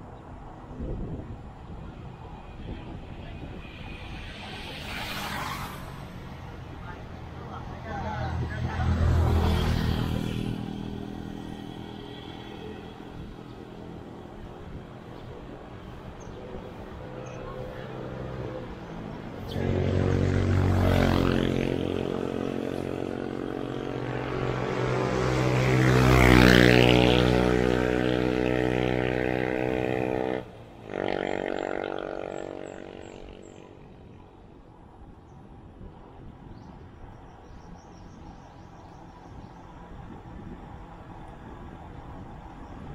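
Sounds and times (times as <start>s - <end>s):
vehicle engine passing by: 2.7s - 34.1s.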